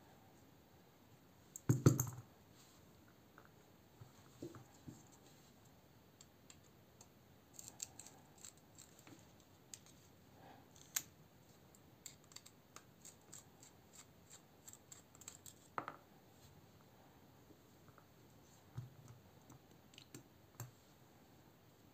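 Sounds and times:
small metallic clicks and scrapes: 0:06.2 - 0:10.1, 0:10.7 - 0:11.1, 0:12.0 - 0:15.8.

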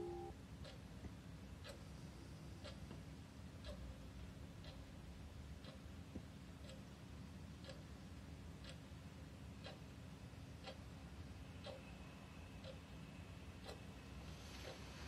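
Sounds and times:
clock ticking: 0:00.0 - 0:00.9, 0:01.6 - 0:01.9, 0:02.6 - 0:11.9, 0:12.6 - 0:13.0, 0:13.6 - 0:14.0
low steady hum: 0:00.0 - 0:15.0.

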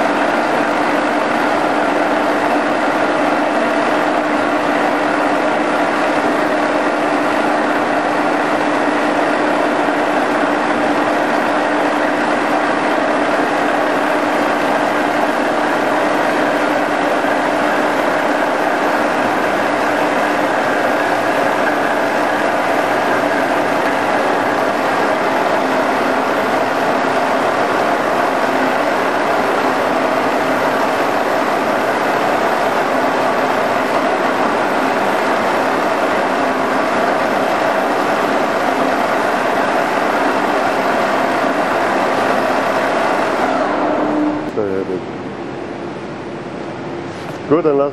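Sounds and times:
milling machine humming and whining: 0:00.0 - 0:47.9.

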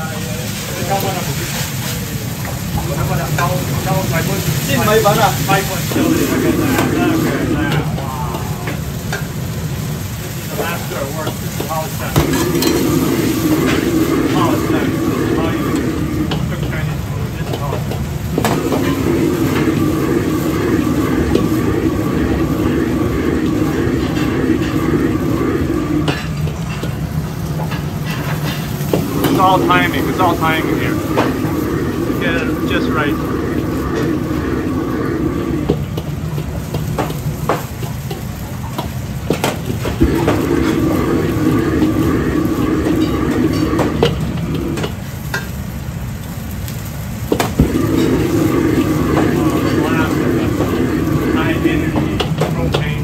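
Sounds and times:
gas burner flame rushing: 0:00.0 - 0:53.0
noodles frying in a wok: 0:00.0 - 0:53.0
wok and ladle clinking: 0:11.2 - 0:13.8.

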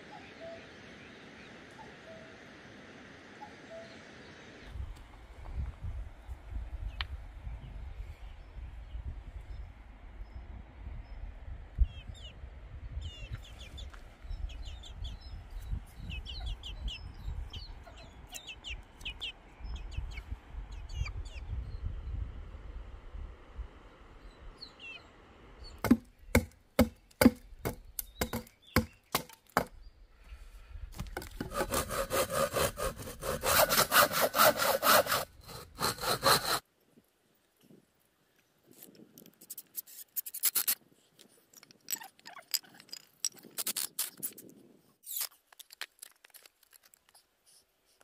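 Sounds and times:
small birds chirping: 0:11.8 - 0:22.2, 0:24.2 - 0:31.2
hand saw cutting wood: 0:25.8 - 0:27.4, 0:31.2 - 0:36.6
sharp wooden knocks: 0:25.8 - 0:29.7.

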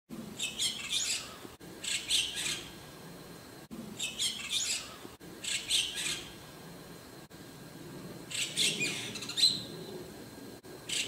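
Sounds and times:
bird chattering calls: 0:00.4 - 0:02.8, 0:04.0 - 0:06.4, 0:08.3 - 0:09.8.

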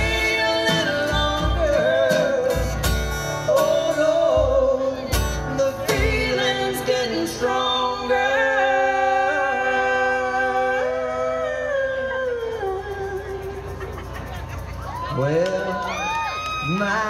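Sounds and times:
strummed acoustic guitar: 0:00.0 - 0:16.0.

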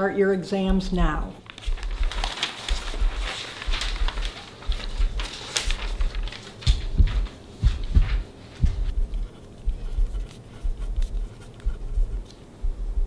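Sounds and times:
pages rustling and turning: 0:01.4 - 0:11.6
low thud: 0:06.8 - 0:10.8
pencils scratching on paper: 0:08.7 - 0:12.4.

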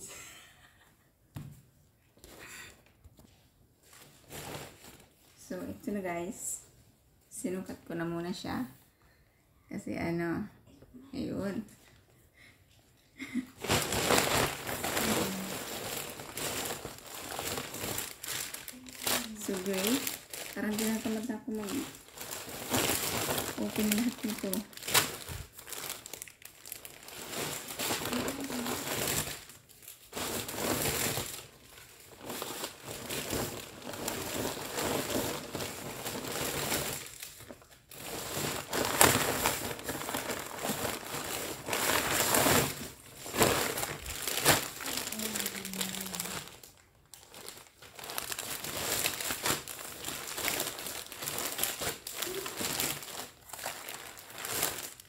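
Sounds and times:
plastic bags crinkling: 0:03.8 - 0:06.0, 0:13.2 - 0:55.0.

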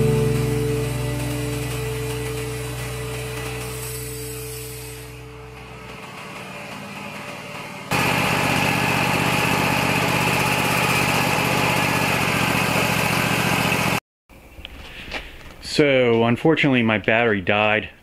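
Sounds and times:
sawmill engine running: 0:00.0 - 0:14.0.

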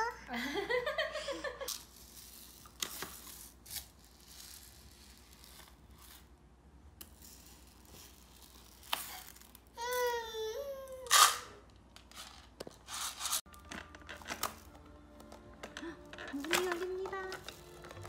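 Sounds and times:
toddler voice: 0:00.0 - 0:00.3, 0:09.8 - 0:11.1.

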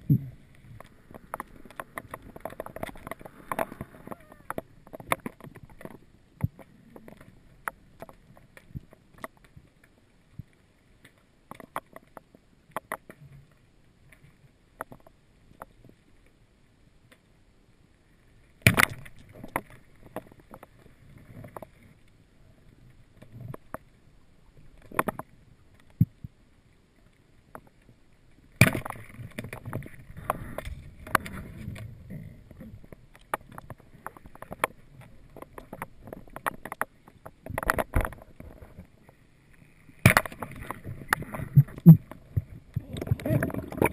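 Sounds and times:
underwater clicks and knocks: 0:00.0 - 0:09.6, 0:10.4 - 0:13.4, 0:14.8 - 0:15.9, 0:18.6 - 0:21.9, 0:23.2 - 0:23.8, 0:24.7 - 0:26.3, 0:28.6 - 0:38.9, 0:39.9 - 0:43.9.

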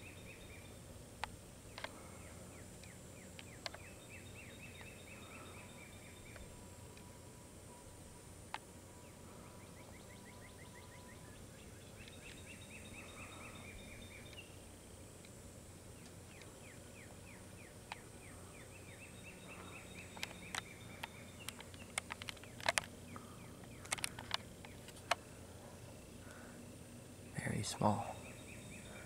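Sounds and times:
songbird trilling: 0:09.6 - 0:14.6, 0:27.2 - 0:29.0
sharp clicks: 0:20.0 - 0:25.2.

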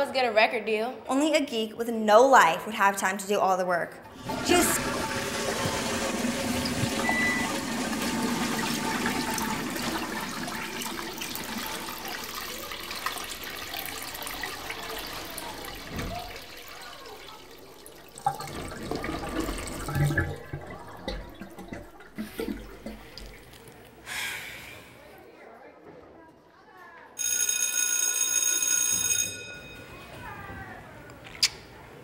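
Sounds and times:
toilet flushing: 0:04.1 - 0:24.1.

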